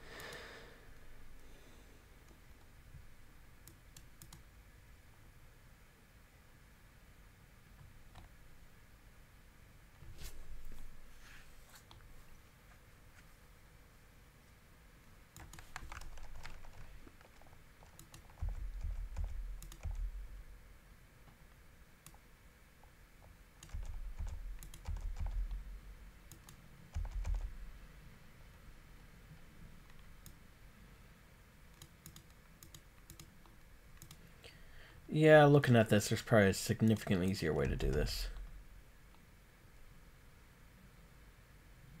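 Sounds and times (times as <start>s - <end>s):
computer keyboard typing: 3.7s - 4.4s, 15.4s - 20.2s, 23.6s - 25.6s, 26.3s - 27.6s, 31.8s - 33.3s, 34.0s - 34.3s.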